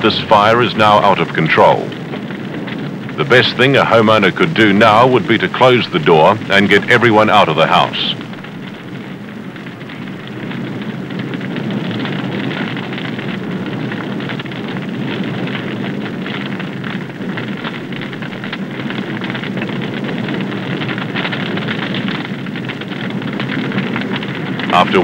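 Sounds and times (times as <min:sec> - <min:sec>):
fire burning with crackling: 0:00.0 - 0:25.0.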